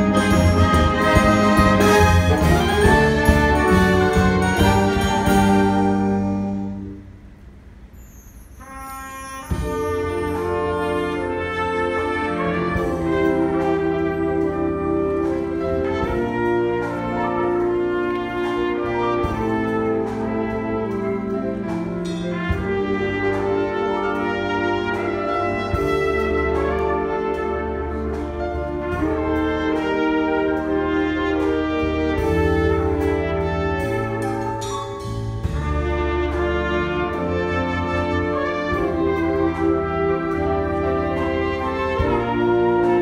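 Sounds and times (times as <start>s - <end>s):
piano chords: 0.0s - 7.8s
wind orchestra playing: 0.0s - 43.0s.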